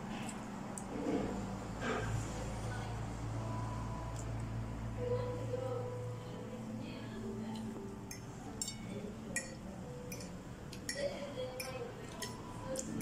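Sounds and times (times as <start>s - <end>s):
faint background murmur: 0.0s - 13.0s
fork clinking against plate: 8.1s - 12.4s.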